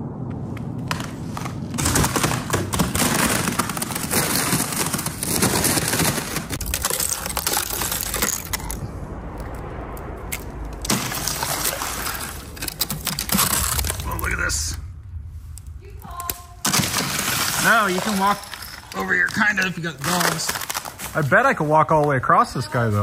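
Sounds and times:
thin ice crackling and clinking: 2.9s - 8.8s, 10.9s - 14.2s, 16.2s - 21.6s.

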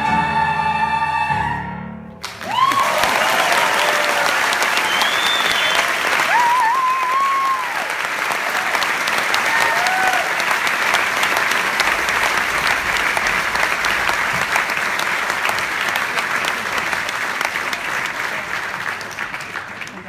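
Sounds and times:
audience applauding: 2.2s - 20.0s
crowd cries: 2.3s - 10.5s.

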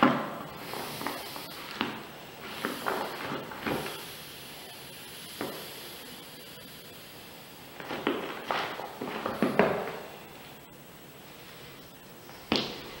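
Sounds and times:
sneakers scuffing a deflated ball: 0.1s - 4.0s, 7.8s - 10.1s.

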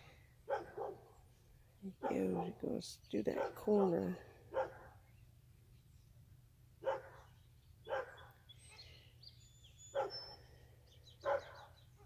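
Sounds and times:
dog barking: 0.5s - 1.1s, 2.0s - 2.6s, 3.4s - 3.7s, 4.5s - 5.0s, 6.8s - 7.3s, 7.9s - 8.3s, 9.9s - 10.3s, 11.2s - 11.8s.

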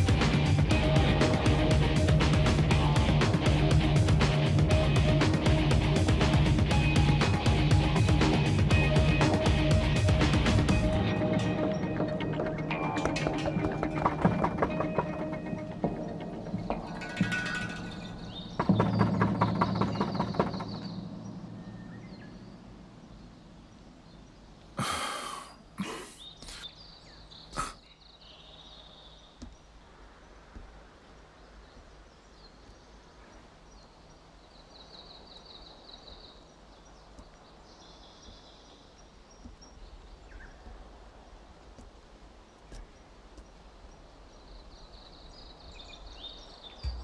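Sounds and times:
background music: 0.0s - 23.0s
small birds chirping: 0.0s - 47.0s
knocking on wooden door: 18.6s - 21.0s.

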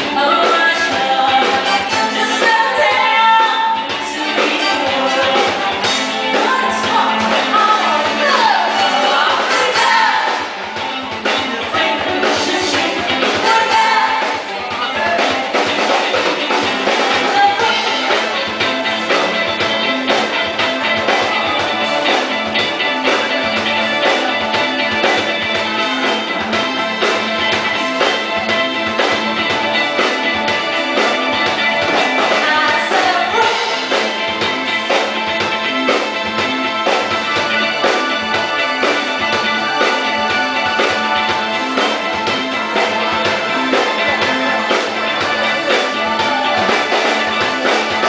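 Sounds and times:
person singing into microphone: 0.0s - 10.5s, 11.3s - 15.5s, 31.8s - 34.0s
drum kit: 0.0s - 48.0s
electric guitar: 0.0s - 48.0s.

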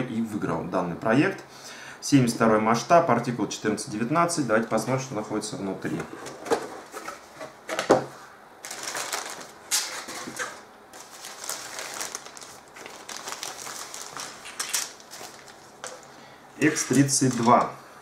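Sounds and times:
plastic bags rustling: 8.6s - 17.8s.

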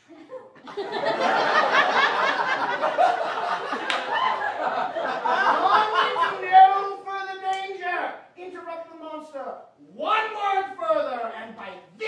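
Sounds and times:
audience laughing: 0.0s - 6.6s.

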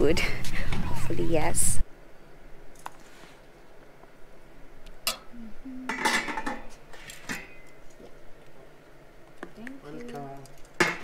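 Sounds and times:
metal ladle and lids clinking: 5.9s - 7.7s.

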